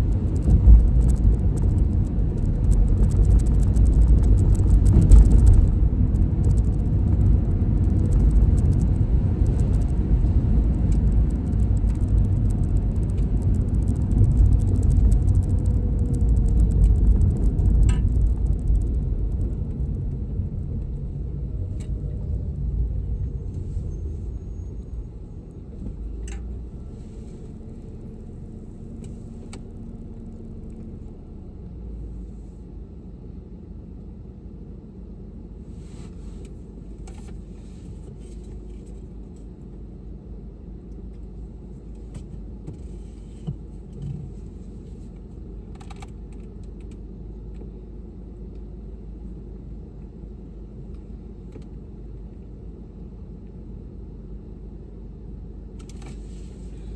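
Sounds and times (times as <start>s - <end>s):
sharp clicks: 0.0s - 20.1s
steady hum: 0.0s - 42.1s
car engine and tyre rumble: 0.0s - 56.9s.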